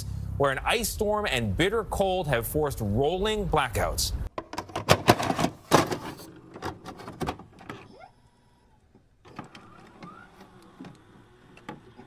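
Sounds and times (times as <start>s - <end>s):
motor whirr: 7.8s - 12.0s.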